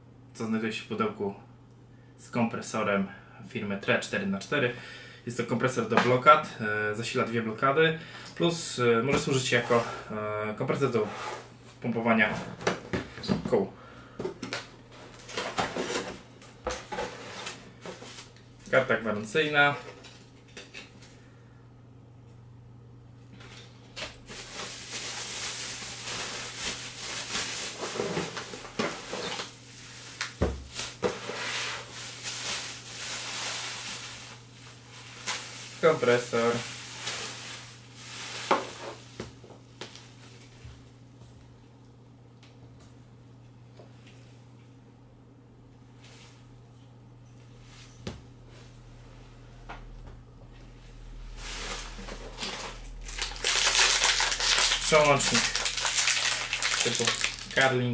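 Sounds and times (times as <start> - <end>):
plastic and bubble wrap rustling: 16.8 - 18.4, 23.4 - 40.6, 51.0 - 57.9.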